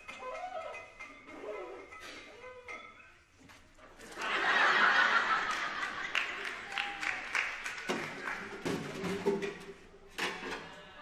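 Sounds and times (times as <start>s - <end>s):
audience laughing: 4.1s - 7.0s.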